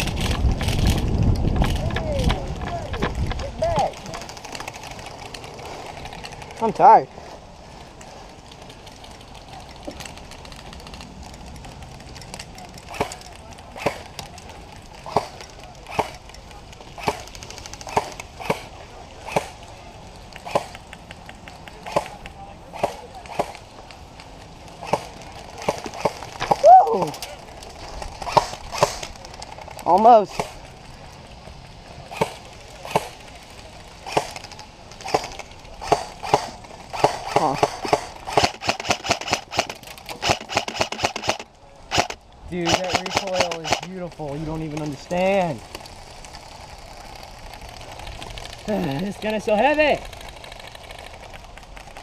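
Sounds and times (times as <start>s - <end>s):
airsoft rifle shots: 12.9s - 14.1s, 15.0s - 16.2s, 17.0s - 19.6s, 20.4s - 20.8s, 21.8s - 23.6s, 24.8s - 26.6s, 28.2s - 29.2s, 30.1s - 30.6s, 32.1s - 33.2s, 34.0s - 43.9s
airsoft gun shots: 35.1s - 43.9s.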